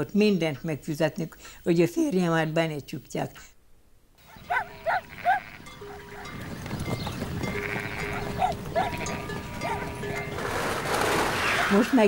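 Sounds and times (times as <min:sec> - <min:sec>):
rustle of moving flock: 0:04.2 - 0:12.0
sheep bells ringing: 0:04.3 - 0:11.0
sheep bleating: 0:04.4 - 0:10.4.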